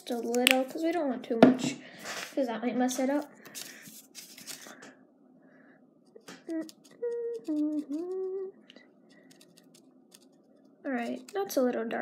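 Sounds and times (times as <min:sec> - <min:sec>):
person humming a tune: 0:06.4 - 0:08.6
paintbrush scraping a paper plate: 0:06.5 - 0:08.4, 0:09.1 - 0:11.6.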